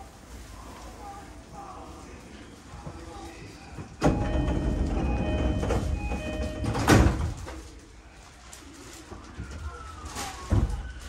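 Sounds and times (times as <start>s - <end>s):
doors shutting with a thump: 4.0s - 7.5s.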